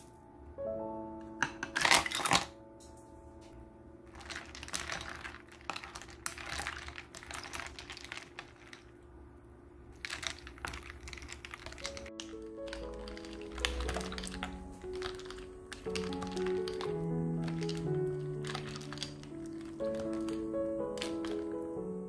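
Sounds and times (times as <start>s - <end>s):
soft background music: 0.0s - 8.2s, 11.0s - 22.0s
ice cubes clinking in a bowl: 1.4s - 2.5s, 4.1s - 8.9s, 10.0s - 21.6s.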